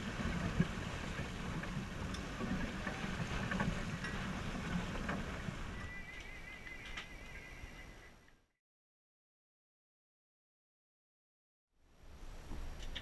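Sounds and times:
wind buffeting microphone: 0:00.0 - 0:08.2
water rushing along hull: 0:00.0 - 0:08.3.

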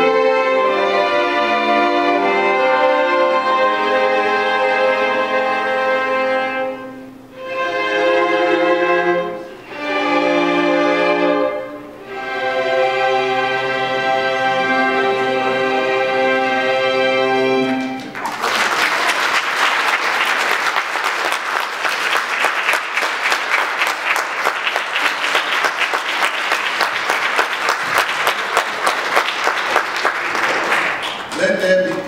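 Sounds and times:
string orchestra chord: 0:00.0 - 0:18.1
audience applauding: 0:17.8 - 0:32.0.

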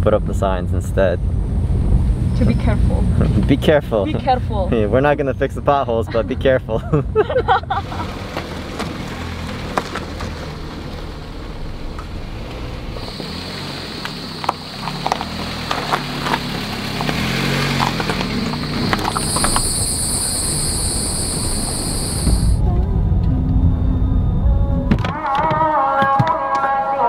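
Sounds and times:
car engine running: 0:00.0 - 0:05.2, 0:07.1 - 0:24.7
stones clicking under tyres: 0:08.3 - 0:11.2, 0:11.9 - 0:22.6
high-pitched insect drone: 0:13.0 - 0:15.0, 0:18.1 - 0:22.6.

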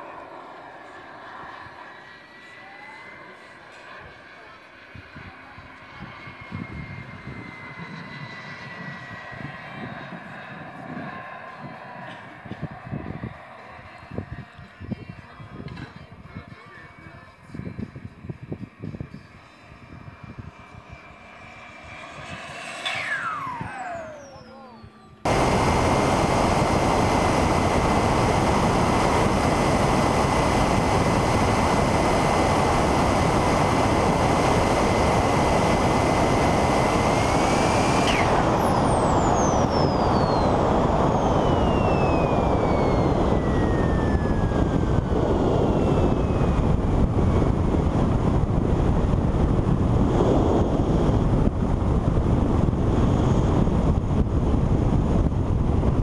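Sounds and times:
jet turbine whining: 0:00.0 - 0:14.4, 0:19.6 - 0:56.0
wind rush on microphone: 0:04.9 - 0:24.3, 0:25.2 - 0:56.0.

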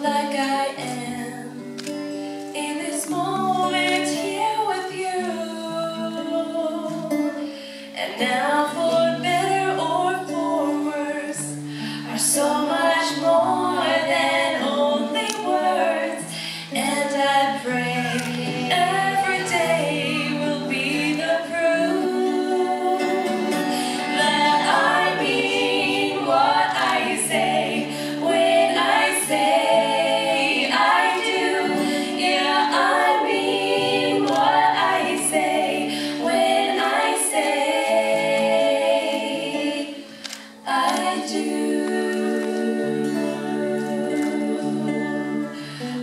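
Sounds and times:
women singing in harmony: 0:00.0 - 0:01.8, 0:02.5 - 0:46.0
acoustic guitar strumming: 0:06.3 - 0:41.2.

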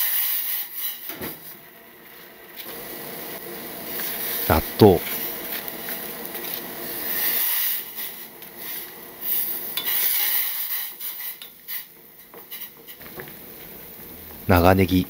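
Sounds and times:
stirring in a metal saucepan: 0:03.9 - 0:13.0.

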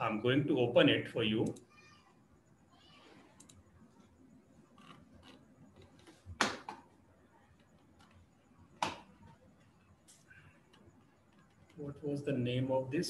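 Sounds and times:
computer mouse clicks: 0:03.4 - 0:03.6.

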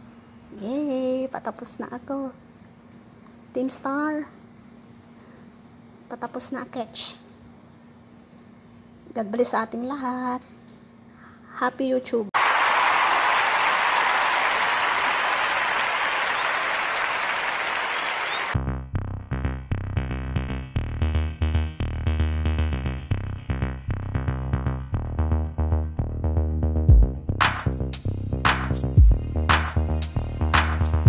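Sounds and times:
electronic music with heavy bass: 0:18.6 - 0:31.0.

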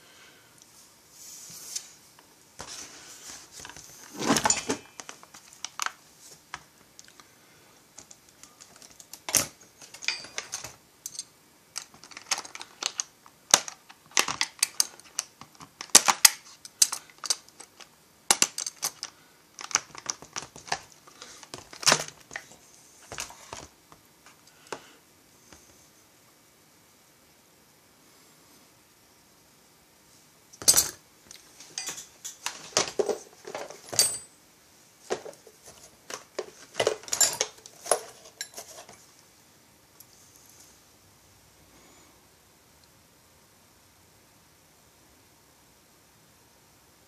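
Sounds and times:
plastic parts clicking on a workbench: 0:11.8 - 0:22.5.

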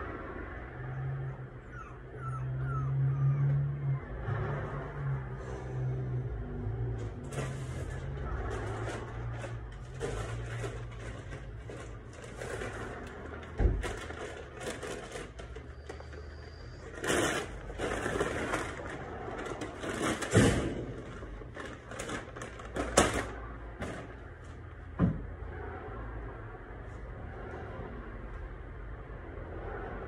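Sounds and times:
rustling or scraping: 0:04.4 - 0:24.6
knocks and thumps: 0:24.9 - 0:25.3.

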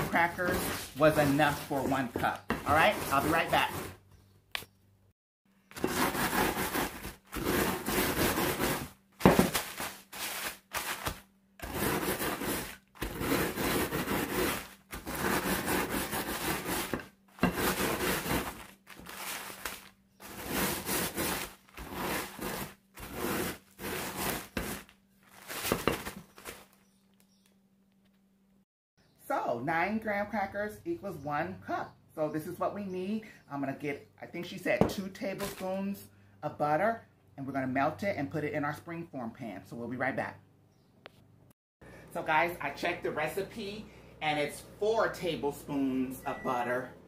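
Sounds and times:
plastic bag crinkling: 0:09.2 - 0:11.2, 0:18.2 - 0:20.4, 0:24.8 - 0:27.5
crackers crunching: 0:09.2 - 0:13.3, 0:17.7 - 0:28.2.

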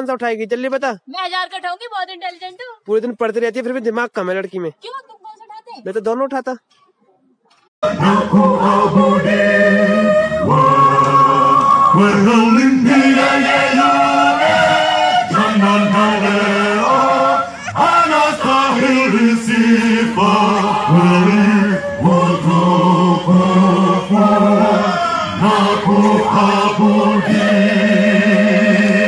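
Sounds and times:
male choir singing a chant: 0:07.8 - 0:29.0.

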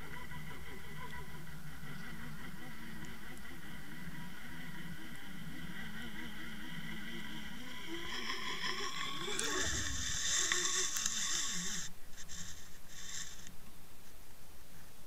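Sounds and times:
wavering hum: 0:00.0 - 0:13.5
underwater water hiss: 0:08.0 - 0:13.5.

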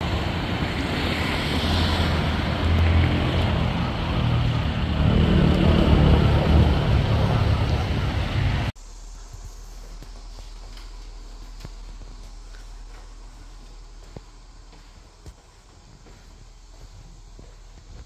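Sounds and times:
cars driving past: 0:00.0 - 0:08.7.

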